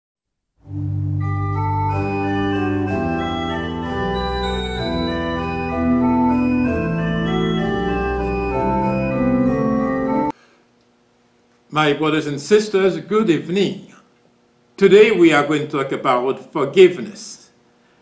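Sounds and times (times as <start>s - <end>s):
organ chords: 0.6s - 10.4s.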